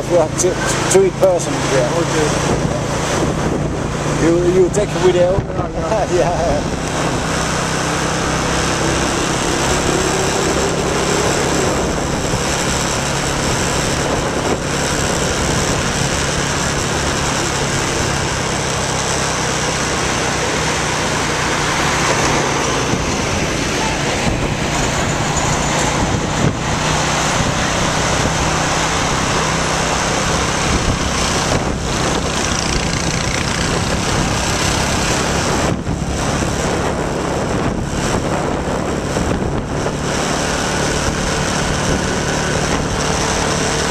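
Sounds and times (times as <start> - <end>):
motorbike engine running: 0.0 - 43.9
road and traffic noise: 0.0 - 43.9.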